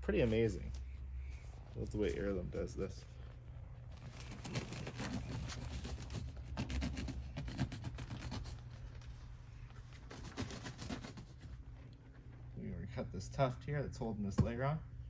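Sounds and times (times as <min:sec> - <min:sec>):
scratchy rubbing and scraping: 0:03.8 - 0:11.8.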